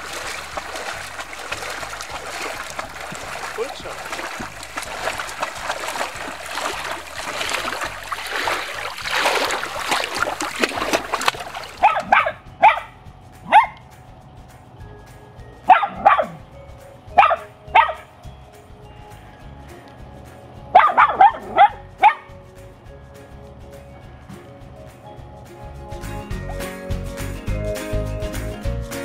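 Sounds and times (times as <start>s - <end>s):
shallow water rushing and splashing: 0.0s - 12.4s
small dog barking: 11.7s - 12.9s, 13.5s - 13.8s, 15.7s - 16.4s, 17.2s - 18.0s, 20.8s - 22.3s.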